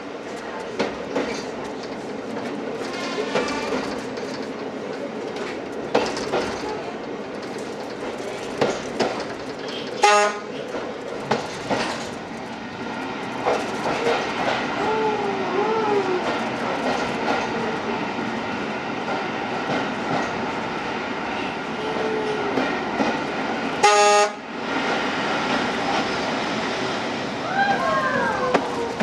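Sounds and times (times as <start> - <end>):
train wheels clicking over rail joints: 0.2 - 15.0, 16.2 - 21.4, 22.5 - 24.0
train horn toot: 10.0 - 10.5, 23.8 - 24.4.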